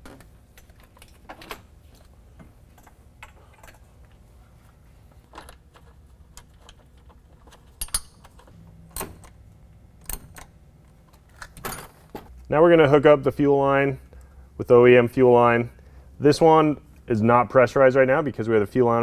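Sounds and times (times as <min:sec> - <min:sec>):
low steady hum: 0:00.0 - 0:19.0
clicks and taps of metal parts: 0:05.4 - 0:09.4.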